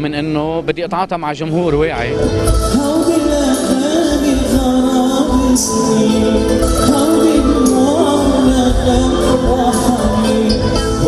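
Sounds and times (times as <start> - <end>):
piano and keyboard accompaniment: 0.0 - 11.0
man singing ornamented melody: 2.6 - 11.0.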